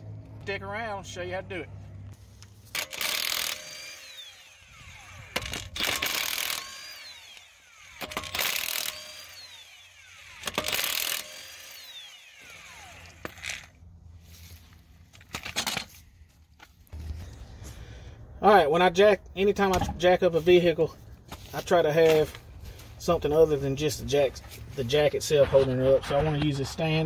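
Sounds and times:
impact wrench hammering lug nuts: 2.7 - 11.8, 12.4 - 13.7
motor whine spinning down: 3.6 - 6.0, 6.6 - 10.6, 11.3 - 13.8.

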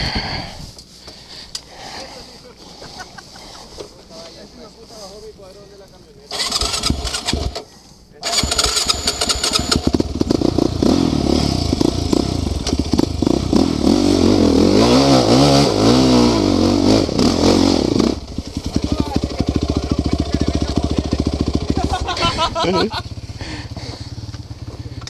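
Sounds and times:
atv engine revving: 6.3 - 25.0.

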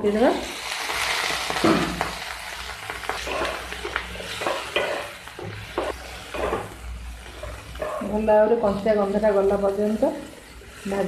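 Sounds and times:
vegetables sizzling in hot oil: 0.0 - 11.0
wooden spatula scraping a pan: 3.0 - 11.0.

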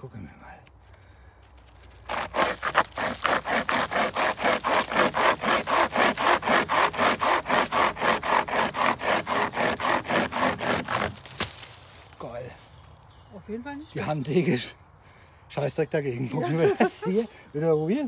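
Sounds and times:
hand chainsaw rasping through wood: 2.0 - 11.3.

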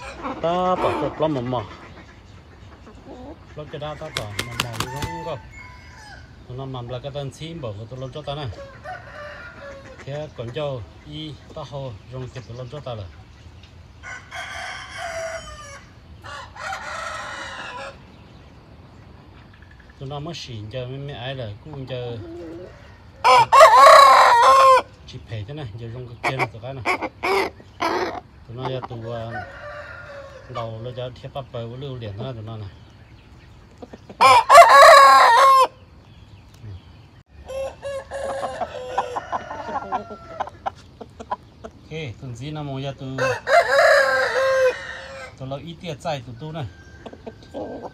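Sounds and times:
rooster crowing: 4.1 - 6.3, 8.6 - 9.9, 14.0 - 18.0, 22.6 - 24.9, 29.2 - 30.6, 34.2 - 35.8, 37.4 - 40.6, 43.1 - 45.4
faint rooster calls: 4.1 - 6.4.

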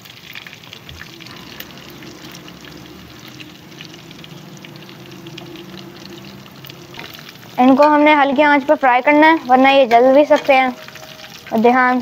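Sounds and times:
oil sizzling and crackling: 0.0 - 12.0
low hum: 0.7 - 9.0.

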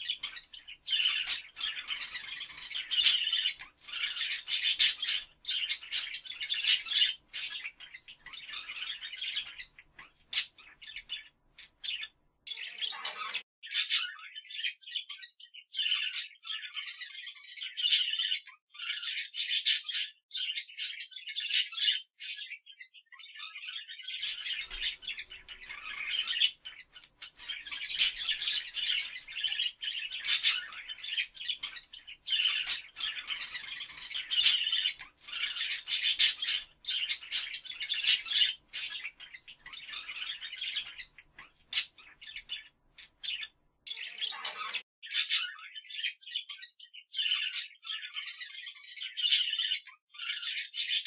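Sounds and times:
parrot squawks: 0.0 - 9.7, 24.2 - 42.6, 43.2 - 45.8
parrots chattering: 0.0 - 15.2, 23.5 - 51.0.

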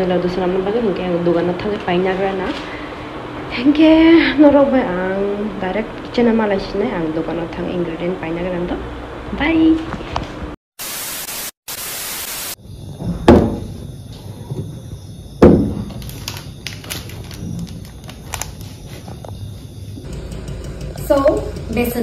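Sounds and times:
static-like hiss: 10.8 - 12.6.

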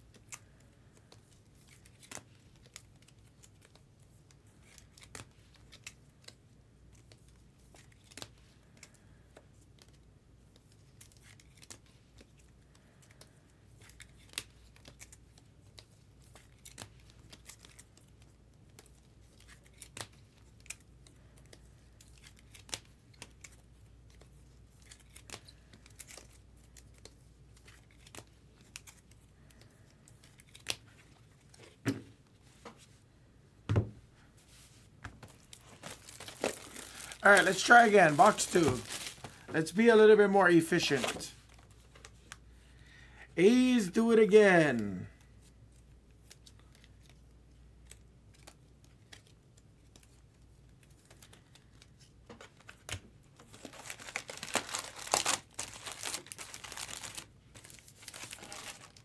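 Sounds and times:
wrappers crinkling and tearing: 10.6 - 31.6, 35.2 - 42.4, 47.8 - 59.0.

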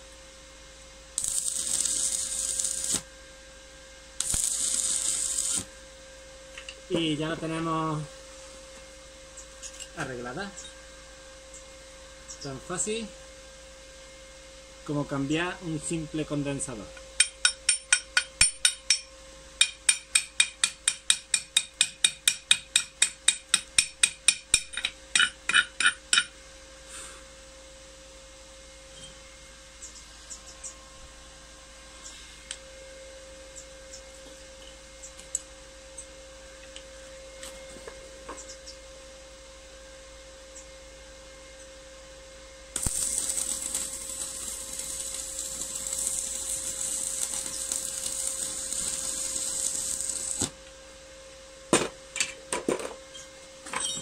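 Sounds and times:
arc welding crackling hiss: 0.0 - 10.7, 42.7 - 51.0.

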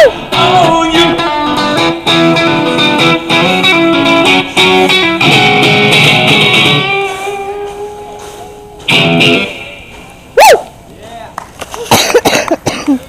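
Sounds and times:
guitar strumming and picking chords: 0.0 - 10.3.

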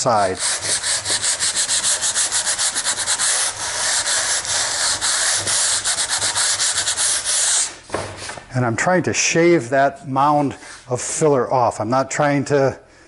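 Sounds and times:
sandpaper rasping on filler: 0.0 - 8.4.

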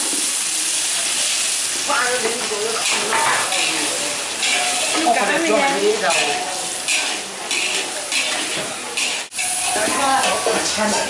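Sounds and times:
curry sauce sizzling: 0.0 - 11.0
spatula scraping a wok: 6.7 - 11.0.

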